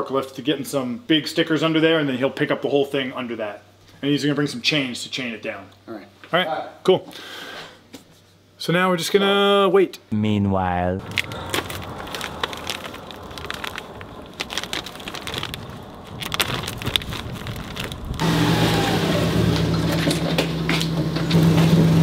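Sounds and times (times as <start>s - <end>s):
plastic wrapping crinkling: 11.0s - 18.2s.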